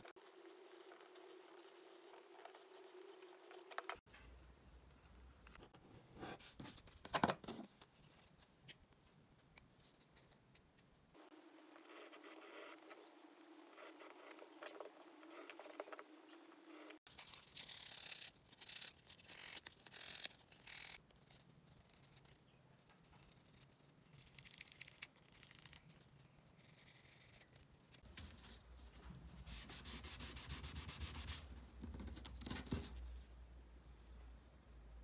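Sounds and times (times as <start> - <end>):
sandpaper rasping on leather: 29.5 - 31.4.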